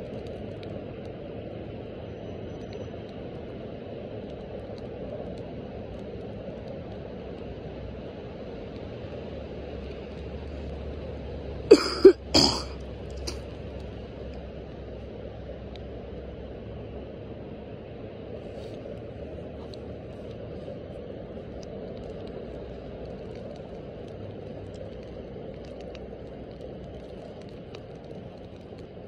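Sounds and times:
background hiss and rumble: 0:00.0 - 0:29.0
person coughing: 0:11.7 - 0:13.4.

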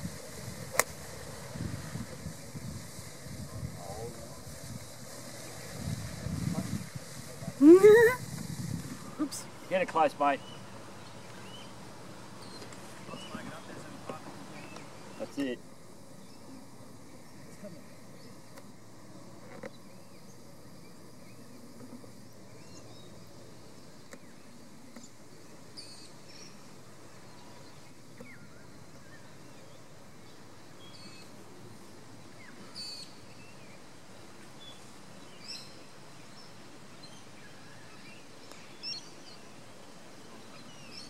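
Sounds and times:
birds chirping: 0:09.2 - 0:33.9.

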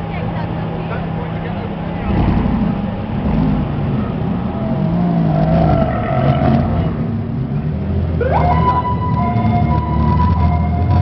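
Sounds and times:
sports car engines revving: 0:00.0 - 0:11.0
siren-like tone: 0:08.2 - 0:11.0.

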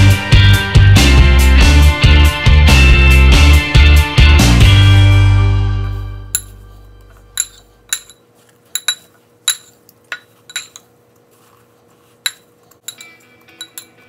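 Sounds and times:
fork clinking against glass bowl: 0:06.3 - 0:10.9, 0:12.2 - 0:14.0.

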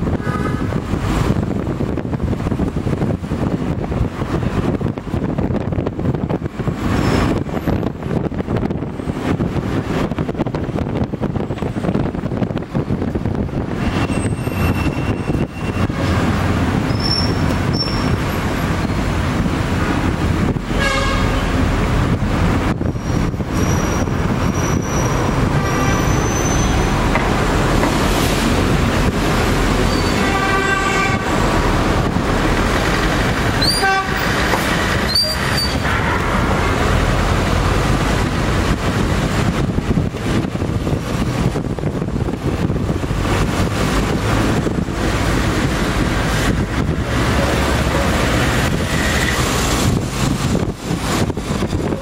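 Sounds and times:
traffic rumble: 0:00.0 - 0:52.0
vehicle horns: 0:00.1 - 0:00.9, 0:20.7 - 0:21.6, 0:29.8 - 0:31.4, 0:33.6 - 0:34.4.

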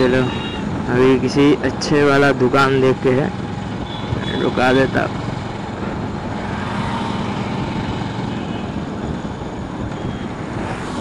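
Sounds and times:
wind and road noise: 0:00.0 - 0:11.0
motorcycle engine running: 0:01.9 - 0:10.4.

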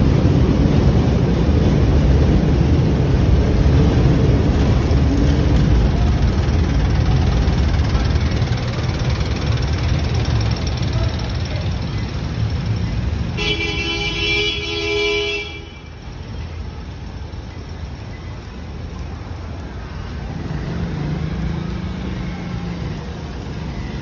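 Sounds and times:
street traffic rumble: 0:00.0 - 0:24.0
vehicle horn honking: 0:13.4 - 0:15.9.

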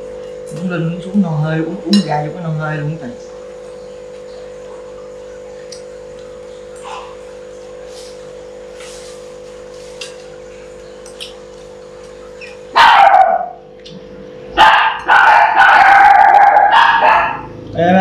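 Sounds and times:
steady low hum: 0:00.0 - 0:18.0
dog barking loudly: 0:12.8 - 0:13.6, 0:14.6 - 0:17.5.

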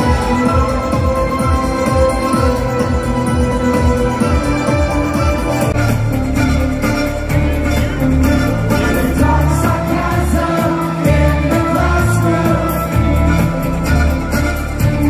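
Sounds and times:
people singing: 0:00.0 - 0:05.4, 0:08.4 - 0:15.0
heavy pulsing bass beat: 0:00.0 - 0:15.0
live dance music with orchestra: 0:00.0 - 0:15.0.

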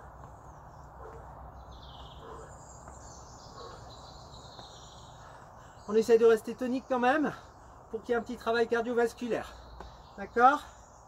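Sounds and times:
insects chirping: 0:00.0 - 0:08.2
faint birdsong: 0:00.0 - 0:11.0.

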